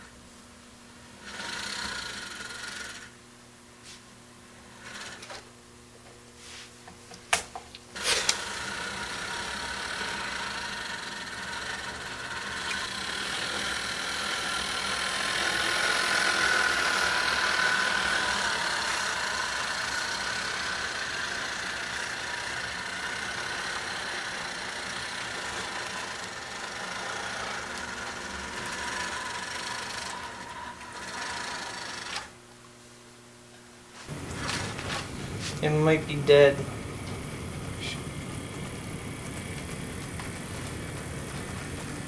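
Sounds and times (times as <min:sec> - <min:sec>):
model train motor whining: 0:01.1 - 0:03.2, 0:04.6 - 0:05.4, 0:08.0 - 0:32.3, 0:34.1 - 0:42.0
wheels rumbling on rails: 0:34.1 - 0:42.0.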